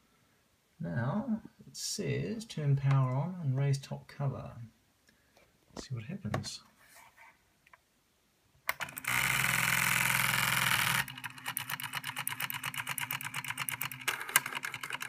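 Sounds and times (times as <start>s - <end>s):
pen carriage rapid clicks: 10.6s - 15.0s.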